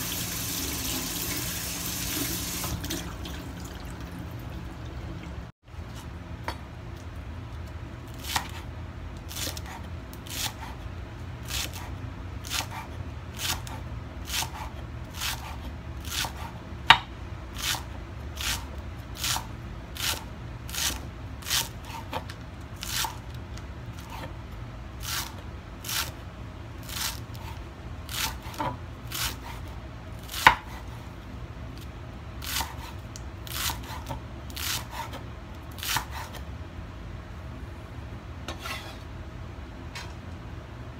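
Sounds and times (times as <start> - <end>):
low steady hum: 0.0 - 40.9.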